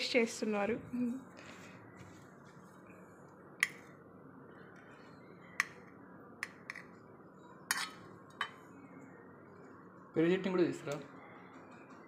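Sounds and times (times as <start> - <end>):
metal spoon clinking on plate: 7.7 - 8.6.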